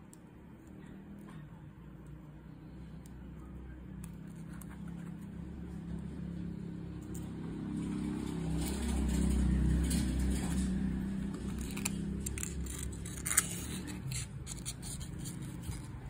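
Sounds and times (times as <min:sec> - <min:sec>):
vehicle engine running: 0:04.6 - 0:16.0.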